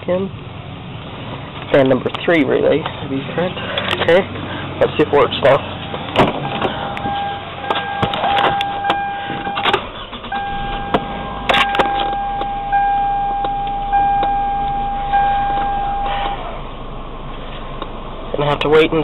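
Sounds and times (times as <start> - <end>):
high electronic warning tone: 5.9 - 9.7, 10.3 - 16.4
low hum: 5.9 - 17.5.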